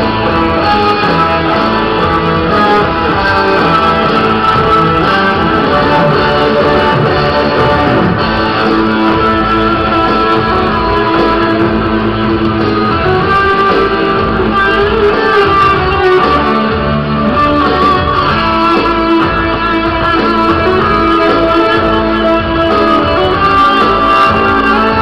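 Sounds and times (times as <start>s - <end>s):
amplified electric guitar melody: 0.0s - 25.0s
band accompaniment: 0.0s - 25.0s.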